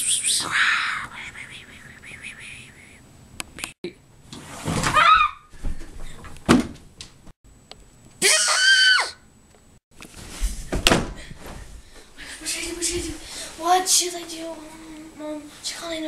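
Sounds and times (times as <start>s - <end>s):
girl screaming: 4.9s - 5.5s, 8.2s - 9.2s.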